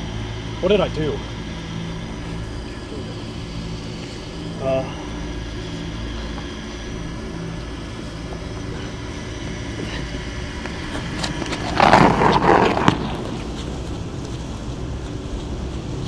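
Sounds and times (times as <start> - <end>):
car engine idling: 0.0 - 16.0
body dragged across asphalt: 7.6 - 16.0.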